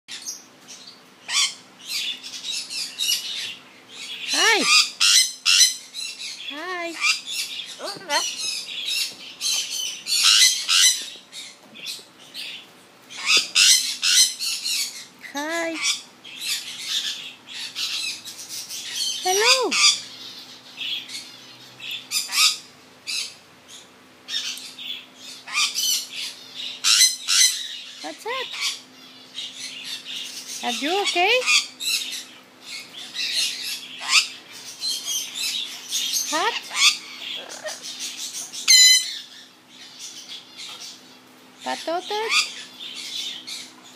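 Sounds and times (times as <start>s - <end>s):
parrot squawking and chirping: 0.1s - 43.9s.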